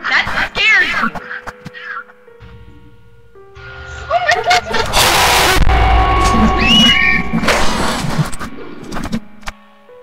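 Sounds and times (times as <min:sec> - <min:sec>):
deep rumble: 0:02.4 - 0:08.9
eerie sustained tones: 0:02.4 - 0:09.4
harsh noise burst: 0:04.7 - 0:08.5
high whistle-like glide: 0:05.2 - 0:08.4.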